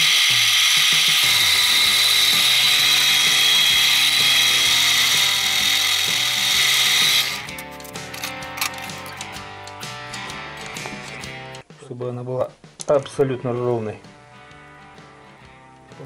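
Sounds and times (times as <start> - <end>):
metal lathe whirring: 0.0 - 7.5.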